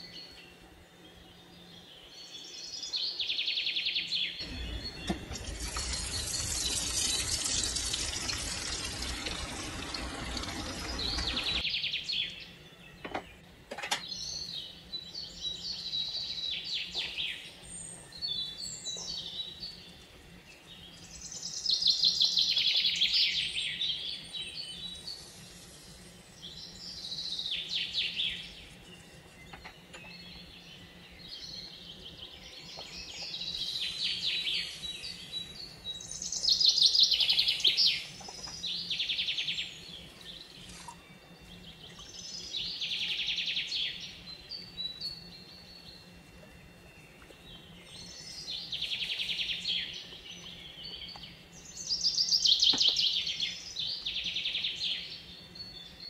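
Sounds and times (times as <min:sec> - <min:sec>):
birds chirping and trilling: 0:00.0 - 0:56.0
loud steady hiss: 0:04.4 - 0:11.7.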